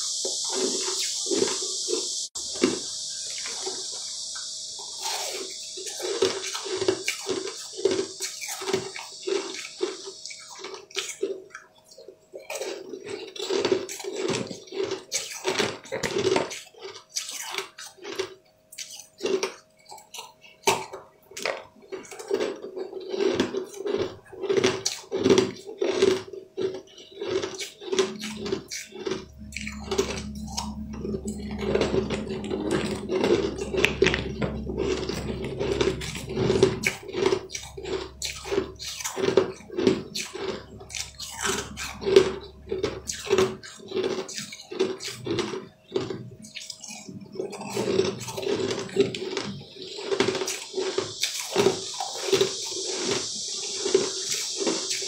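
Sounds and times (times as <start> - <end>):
candy crunching: 12.4 - 31.6, 37.0 - 53.0.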